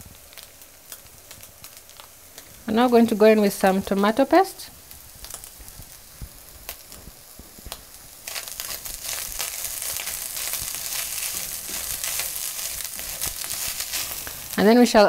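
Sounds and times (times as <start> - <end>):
meat sizzling in a pan: 0.0 - 15.0
spatula stirring in pan: 4.8 - 14.6.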